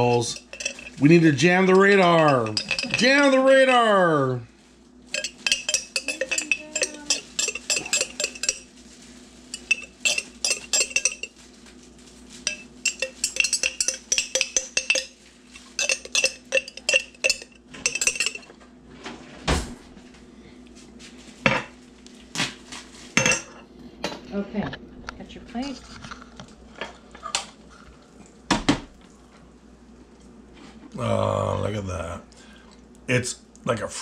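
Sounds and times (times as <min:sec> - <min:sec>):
knife clinking against glass jar: 0:00.0 - 0:01.1, 0:01.8 - 0:03.4, 0:05.1 - 0:08.7, 0:09.5 - 0:11.3, 0:12.5 - 0:18.5, 0:23.2 - 0:23.5.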